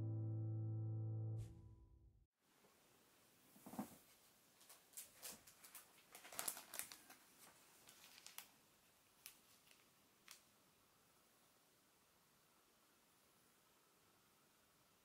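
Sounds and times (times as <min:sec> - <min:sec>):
plastic package crinkling: 0:04.6 - 0:10.5.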